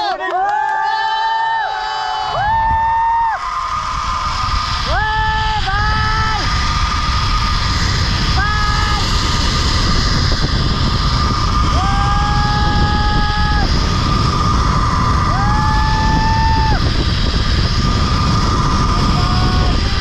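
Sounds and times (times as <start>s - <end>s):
man whooping: 0.0s - 6.5s, 11.6s - 16.8s
high whine: 1.4s - 20.0s
wind rushing over microphone: 2.2s - 20.0s.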